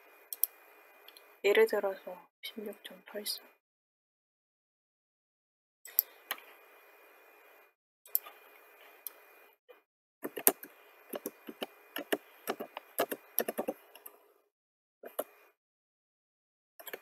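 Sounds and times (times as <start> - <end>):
keyboard keystrokes: 10.3 - 13.8.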